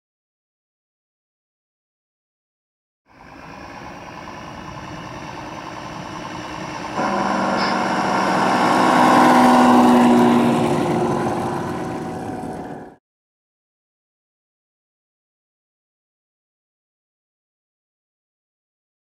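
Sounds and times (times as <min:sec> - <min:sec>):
recorded truck engine: 0:03.1 - 0:13.0.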